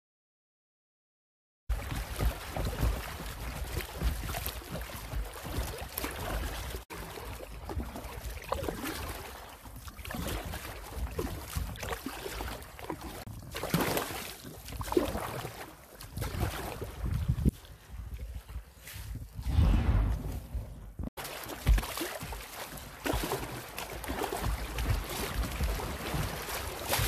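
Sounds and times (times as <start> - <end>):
water slapping kayak hull: 1.7 - 19.1, 21.0 - 27.0
wind rumble on microphone: 16.1 - 21.1.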